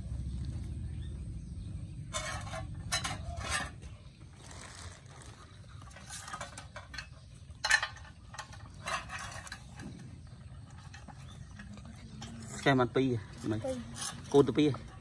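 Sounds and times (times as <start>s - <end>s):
puppies eating from metal tray: 5.4s - 13.2s.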